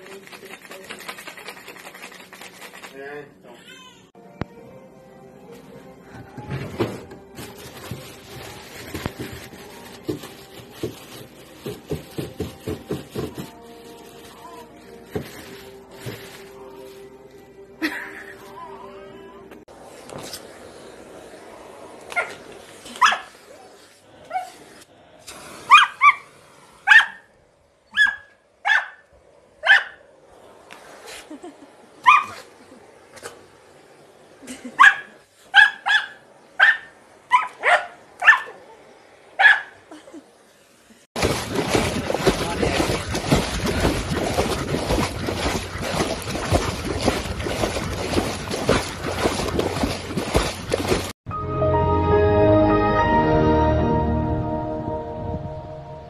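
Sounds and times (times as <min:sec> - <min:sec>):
dog barking in high yips: 0:23.0 - 0:23.3, 0:25.7 - 0:26.3, 0:26.9 - 0:27.3, 0:27.9 - 0:29.0, 0:29.6 - 0:30.0, 0:32.0 - 0:32.5, 0:34.8 - 0:38.6, 0:39.4 - 0:39.8
water splashing around swimming dog: 0:41.2 - 0:51.2.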